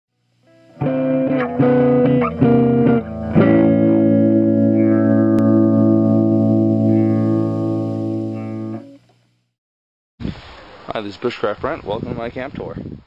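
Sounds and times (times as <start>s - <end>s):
distorted electric guitar chords: 0.4s - 9.1s.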